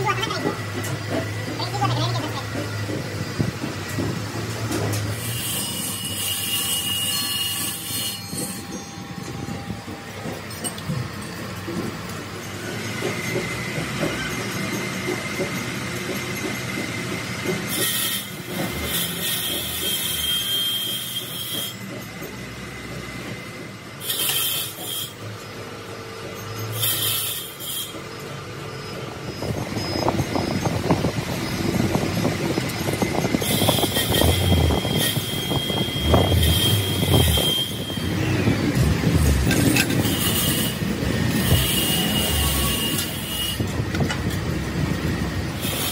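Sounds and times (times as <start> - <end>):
grinding machine whine: 0.0 - 45.9.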